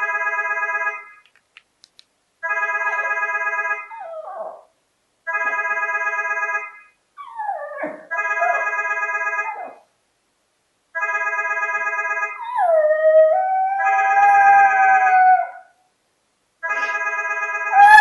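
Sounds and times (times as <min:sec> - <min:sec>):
phone ringing electronic ringtone: 0:00.0 - 0:01.2, 0:02.4 - 0:03.9, 0:05.3 - 0:06.9, 0:08.1 - 0:09.7, 0:11.0 - 0:12.5, 0:16.6 - 0:18.0
small dog barking and howling: 0:03.9 - 0:04.7, 0:09.4 - 0:09.9, 0:12.4 - 0:15.8, 0:17.7 - 0:18.0.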